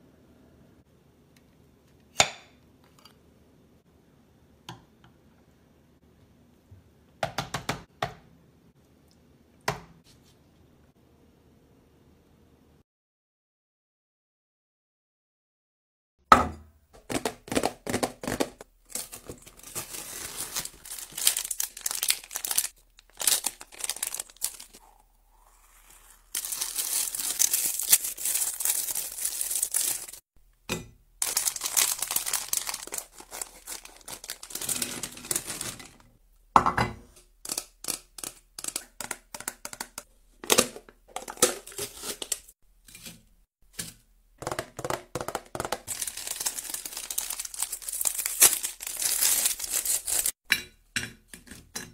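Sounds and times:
snack packaging crinkling: 17.1s - 24.9s, 25.8s - 30.2s, 31.2s - 36.1s, 41.2s - 42.5s, 45.5s - 50.4s.

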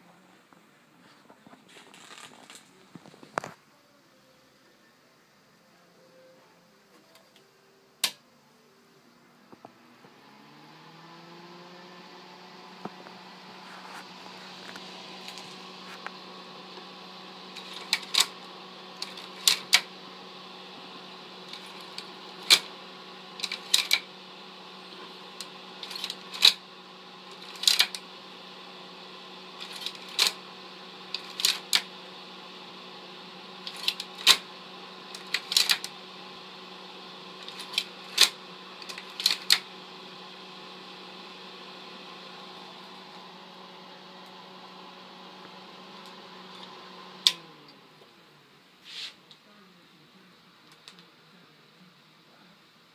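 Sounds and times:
slide projector humming: 4.4s - 52.9s
slide changer clicking: 17.5s - 19.9s.

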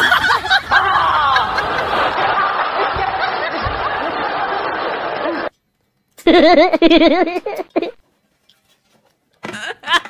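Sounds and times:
comic laughter: 0.0s - 5.5s, 6.2s - 8.0s, 9.5s - 10.0s.

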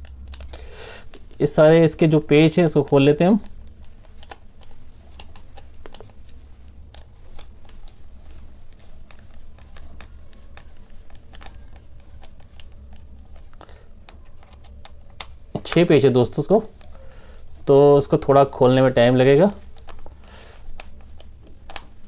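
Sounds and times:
screwdriver clicking and scraping: 3.3s - 8.0s, 8.7s - 15.8s.

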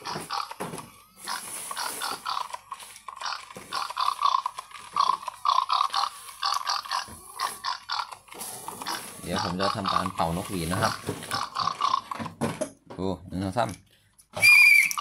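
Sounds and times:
toy pig electronic oinks: 0.0s - 2.6s, 3.2s - 12.3s.

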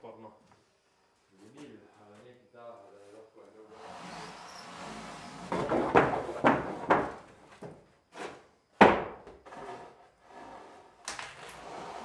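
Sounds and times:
wooden boards knocking and clattering: 5.4s - 7.9s, 8.8s - 9.4s.

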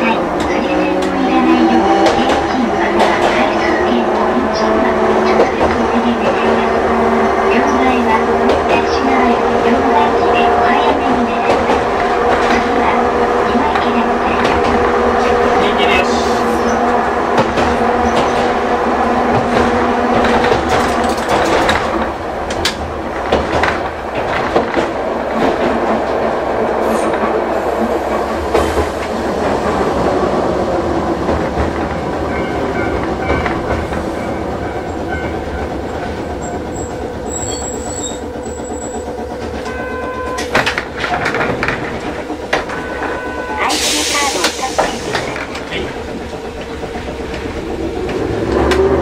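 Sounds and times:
tram motor whine: 0.0s - 49.0s
wheels clicking over rail joints: 16.6s - 27.4s, 28.1s - 49.0s.

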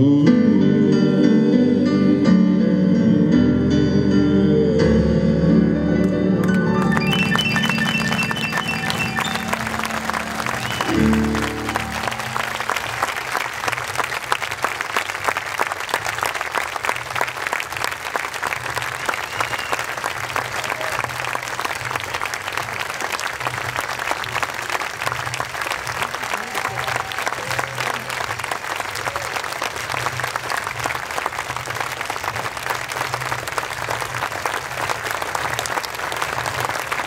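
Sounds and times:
grand piano notes: 1.9s - 13.4s
audience applauding: 6.4s - 37.0s.

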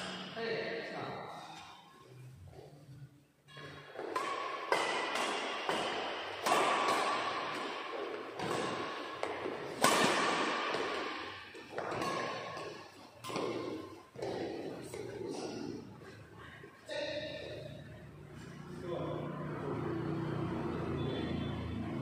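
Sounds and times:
rackets hitting shuttlecock: 3.5s - 15.9s.

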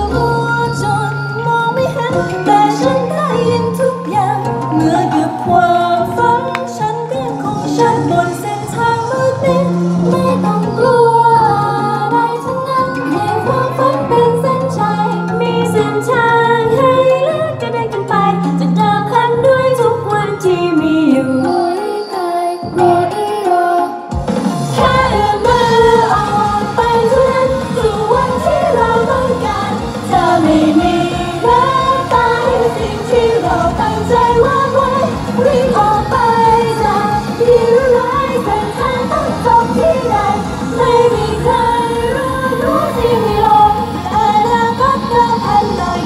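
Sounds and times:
female group singing pop song: 0.0s - 46.0s
backing track with steady beat: 22.6s - 46.0s.

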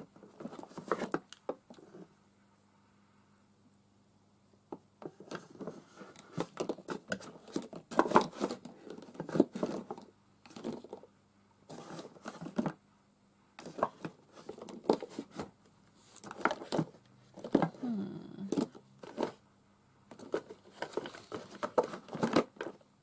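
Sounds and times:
paper or plastic rustling: 0.2s - 1.3s, 5.1s - 11.0s, 11.7s - 12.7s, 13.6s - 17.8s, 18.6s - 19.4s, 20.1s - 22.8s.

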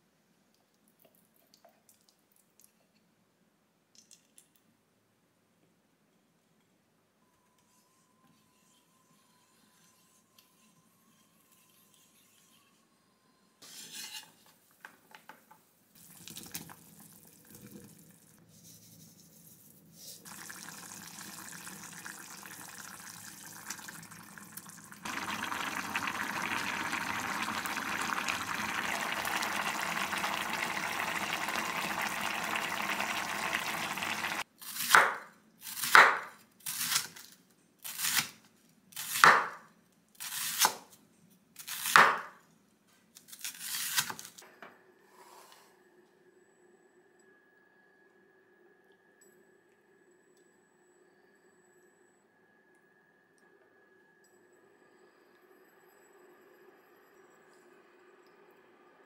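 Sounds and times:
stew bubbling in a pot: 16.0s - 18.4s, 20.2s - 34.4s.

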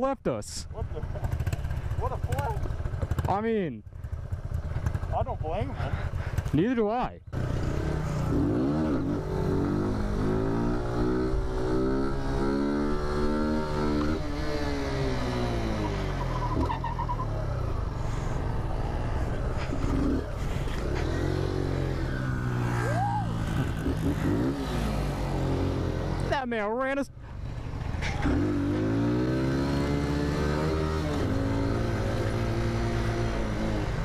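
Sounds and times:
mini-bike engine revving: 7.3s - 26.3s, 27.6s - 34.0s.

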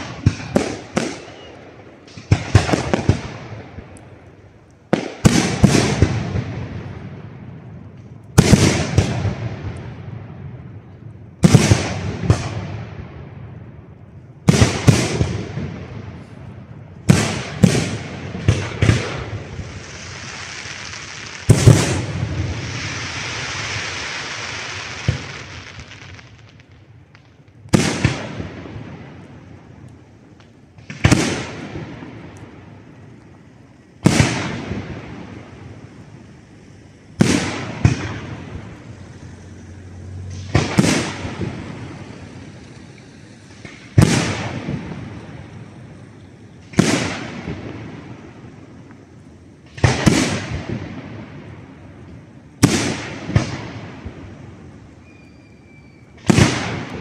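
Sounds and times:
firework bangs with echo: 0.0s - 4.2s, 4.9s - 36.4s, 37.1s - 57.0s
steady hiss: 0.0s - 57.0s.

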